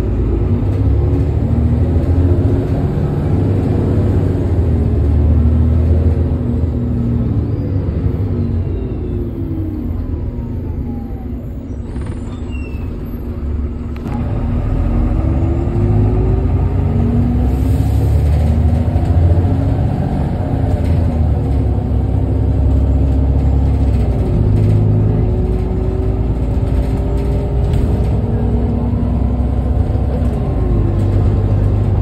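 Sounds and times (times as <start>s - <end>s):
bus diesel engine accelerating: 0.0s - 32.0s.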